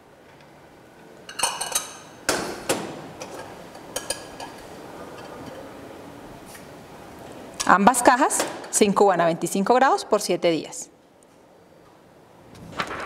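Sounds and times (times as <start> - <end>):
glassware clinking: 1.3 - 2.2.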